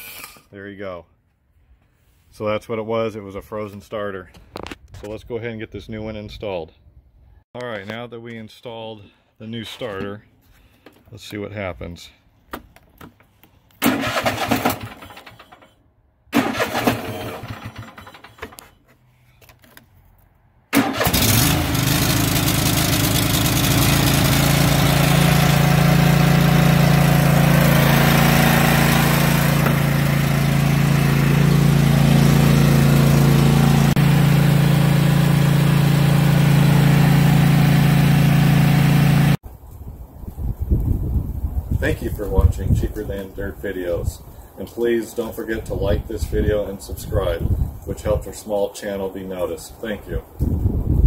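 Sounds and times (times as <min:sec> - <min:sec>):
mower engine starting and running: 0:13.8 - 0:19.0, 0:20.7 - 0:39.4.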